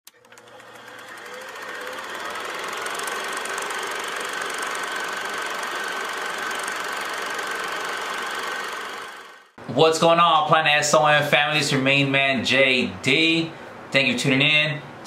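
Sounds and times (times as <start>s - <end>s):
film projector clatter: 0.1s - 9.5s.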